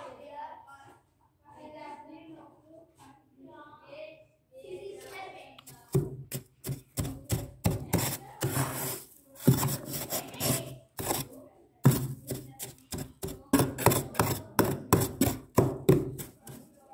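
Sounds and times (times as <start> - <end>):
spoon scraping frost: 5.6 - 16.9.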